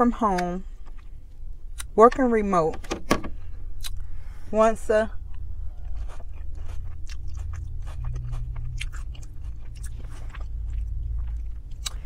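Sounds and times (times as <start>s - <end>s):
steady low hum: 0.0s - 12.0s
person chewing food: 0.7s - 1.9s, 3.7s - 4.2s, 5.2s - 12.0s.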